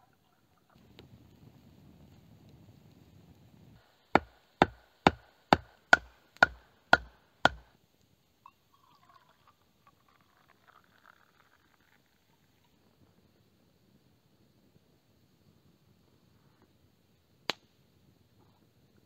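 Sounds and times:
blade chopping wood: 4.2s - 7.7s.

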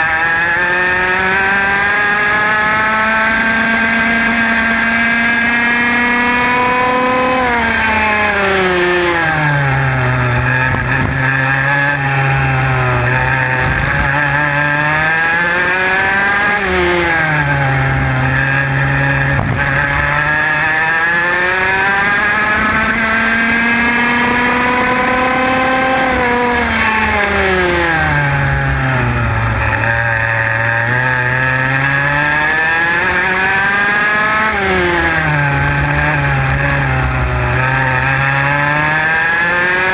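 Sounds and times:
kart engine: 0.0s - 39.9s.

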